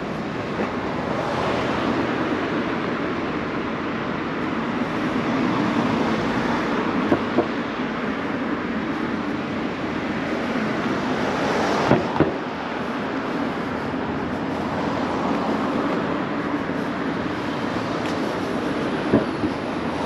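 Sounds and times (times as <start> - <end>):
road traffic: 0.0 - 20.0
sharp knocks: 7.1 - 7.6, 11.8 - 12.4, 19.1 - 19.6.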